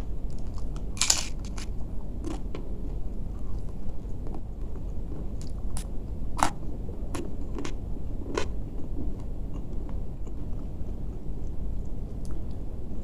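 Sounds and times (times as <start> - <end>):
low background rumble: 0.0 - 13.0
person chewing crispy food: 0.3 - 2.5, 5.4 - 11.6.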